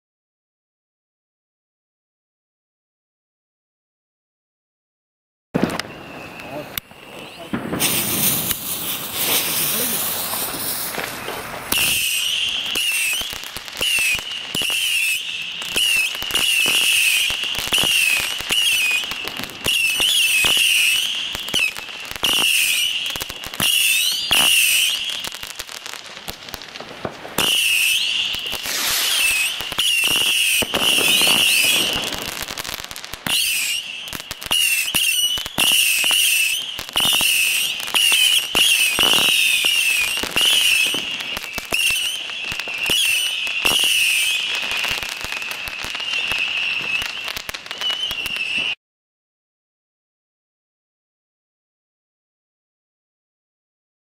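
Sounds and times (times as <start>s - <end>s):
fireworks crackling and exploding: 5.6s - 48.8s
high-pitched firework whistle: 5.6s - 48.8s.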